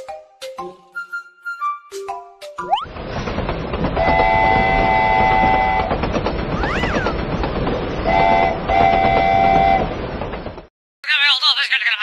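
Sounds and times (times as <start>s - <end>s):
toy train rattling rumble: 2.9s - 10.7s
multi-tone train horn: 4.0s - 6.0s, 8.0s - 10.0s.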